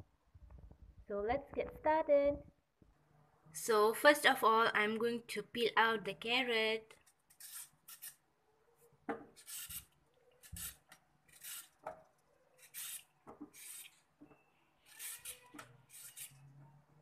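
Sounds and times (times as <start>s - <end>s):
vegetable peeler scraping carrot: 7.3s - 8.2s, 9.4s - 11.8s, 12.6s - 14.0s, 14.8s - 16.6s.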